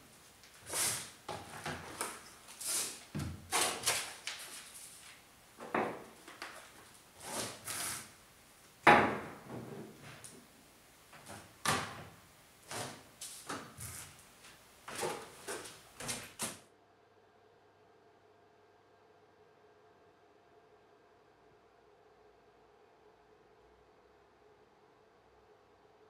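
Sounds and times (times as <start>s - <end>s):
objects set down on metal bench: 5.6s - 6.8s.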